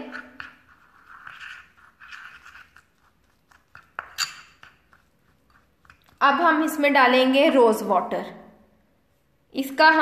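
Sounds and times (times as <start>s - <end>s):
spoon scraping paste in bowl: 0.0s - 6.7s
spoon clinking on ceramic bowl: 3.7s - 4.9s.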